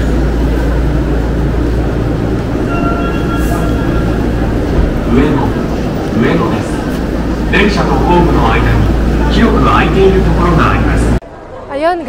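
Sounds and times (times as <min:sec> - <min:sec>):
subway train rumbling: 0:00.0 - 0:12.0
high steady tones: 0:02.0 - 0:11.2.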